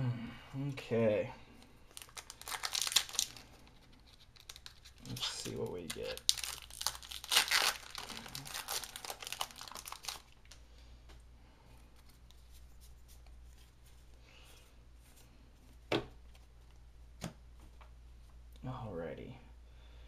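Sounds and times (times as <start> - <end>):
foil wrapper tearing and crinkling: 1.9 - 10.6.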